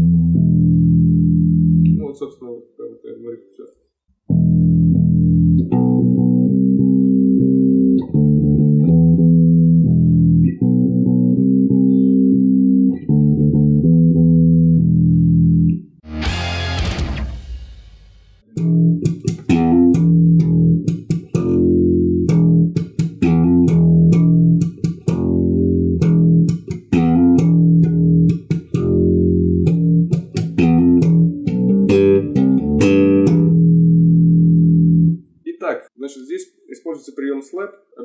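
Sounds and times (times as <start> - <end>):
electric bass slap riff: 0.0 - 2.1, 4.3 - 17.6, 18.4 - 35.3.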